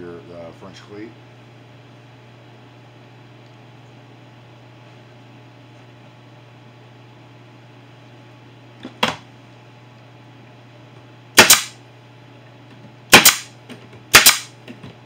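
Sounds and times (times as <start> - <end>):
nail gun firing: 11.4 - 11.8, 13.1 - 13.5, 14.1 - 14.5.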